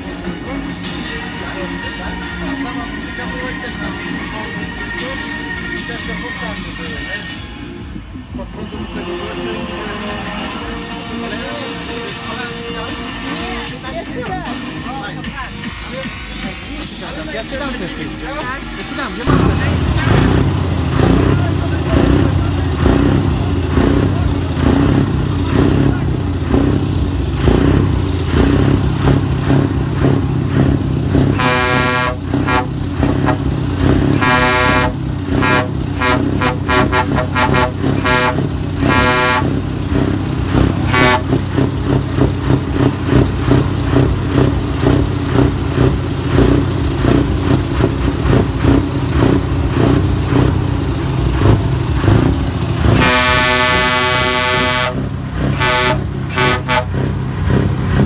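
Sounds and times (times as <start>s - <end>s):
truck engines rumbling: 0.0s - 58.0s
truck air horn blasts: 31.2s - 41.7s, 52.8s - 57.2s.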